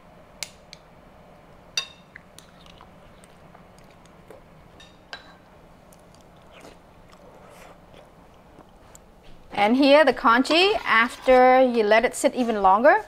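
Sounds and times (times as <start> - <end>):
soft eating sounds: 1.5 - 9.6.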